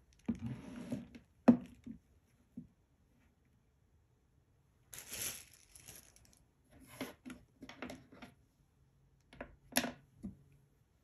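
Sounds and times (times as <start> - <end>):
plastic packaging crinkling: 4.9 - 6.4.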